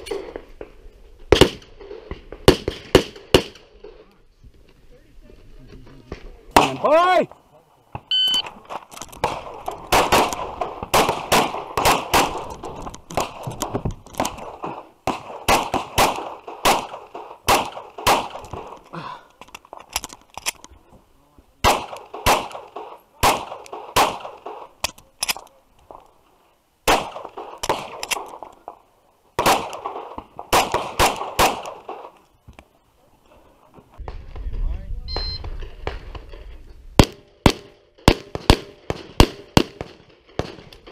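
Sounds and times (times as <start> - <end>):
pistol shots: 9.2 - 18.8, 21.6 - 24.9, 26.9 - 28.8, 29.4 - 32.2, 37.0 - 40.8.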